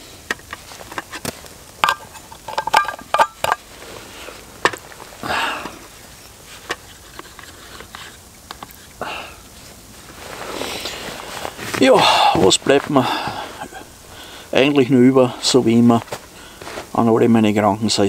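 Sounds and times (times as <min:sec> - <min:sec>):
metal cookware clinking: 0:01.8 - 0:03.6.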